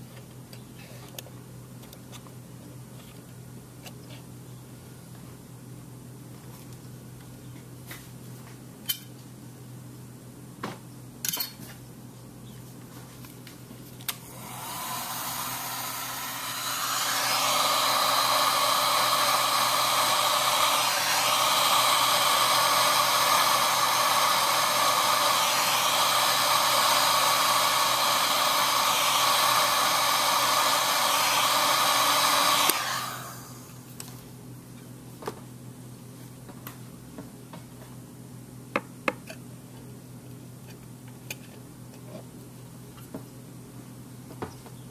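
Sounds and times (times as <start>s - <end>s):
heat gun blowing: 14.1s - 33.8s.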